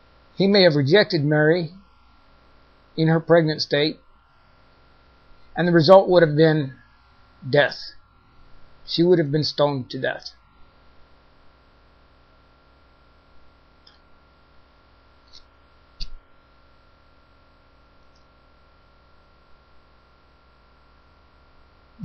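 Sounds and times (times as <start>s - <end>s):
electrical hum: 0.0s - 22.0s.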